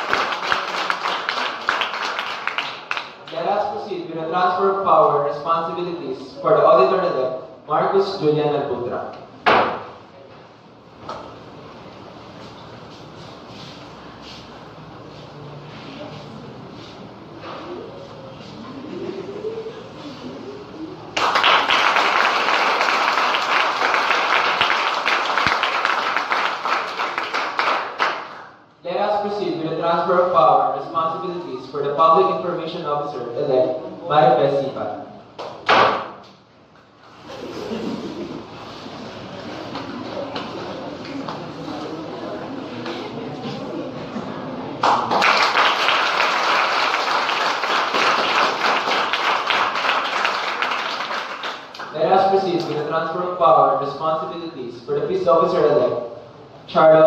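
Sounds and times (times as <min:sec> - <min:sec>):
audience applause: 0:00.0 - 0:03.2, 0:21.2 - 0:28.3, 0:44.8 - 0:51.9.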